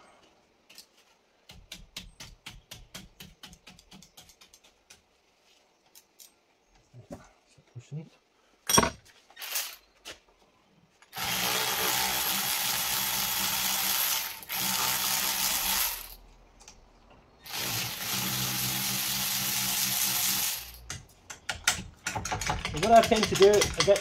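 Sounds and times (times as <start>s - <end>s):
electric ratchet motor running: 9.4s - 9.8s, 11.2s - 16.2s, 17.4s - 20.8s.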